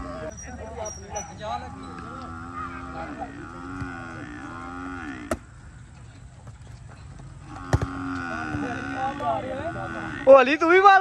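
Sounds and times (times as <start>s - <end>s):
cow mooing: 1.6s - 5.5s, 7.4s - 10.3s
volleyball being struck: 5.2s - 5.5s, 7.6s - 8.6s.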